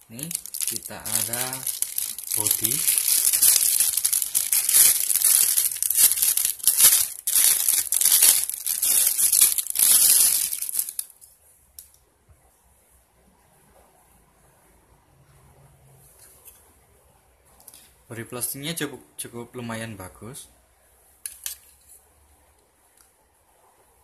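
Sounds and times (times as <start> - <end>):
plastic bag crinkling: 0.0 - 11.2.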